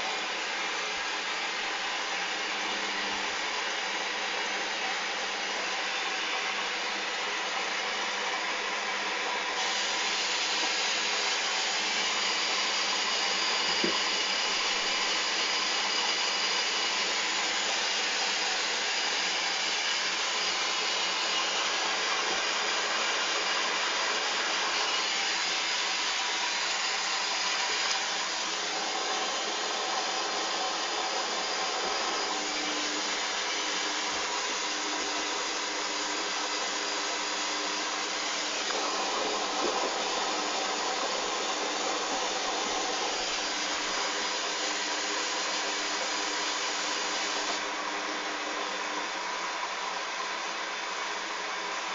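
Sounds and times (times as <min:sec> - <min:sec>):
motor whirring: 0:09.6 - 0:47.7.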